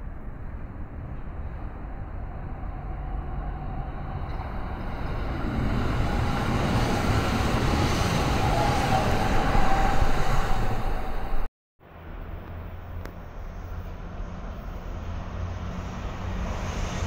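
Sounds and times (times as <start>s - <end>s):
train whine: 0.3s - 12.2s
electric train passing: 0.4s - 12.2s, 13.4s - 17.0s.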